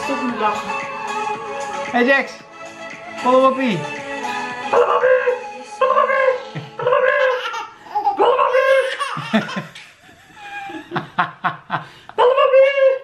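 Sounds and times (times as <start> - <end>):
baby laughing: 5.8 - 11.0
woman laughing: 6.0 - 11.8.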